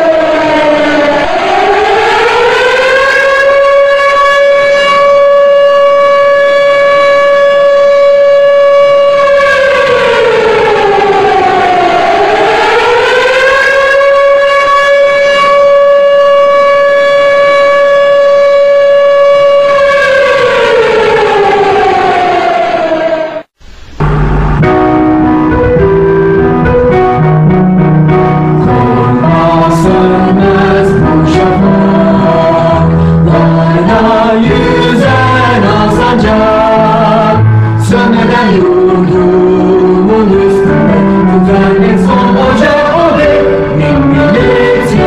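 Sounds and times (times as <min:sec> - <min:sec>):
civil defense siren: 0:00.0 - 0:45.0.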